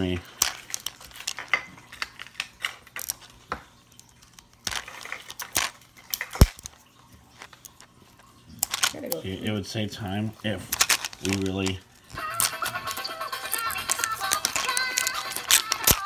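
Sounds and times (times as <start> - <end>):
plastic capsule clicking and creaking: 0.2 - 6.8, 8.6 - 9.4, 10.7 - 16.0.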